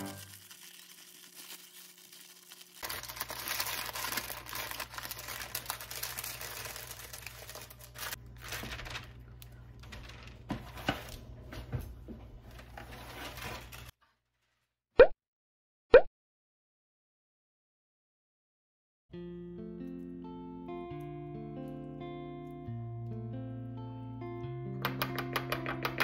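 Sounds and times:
parchment paper crinkling: 0:00.0 - 0:11.4, 0:12.4 - 0:14.6.

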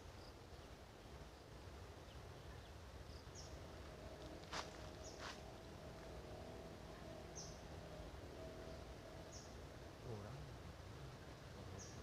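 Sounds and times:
bird chirping: 0:02.1 - 0:03.6, 0:07.3 - 0:07.6, 0:08.6 - 0:09.6, 0:11.7 - 0:12.0.

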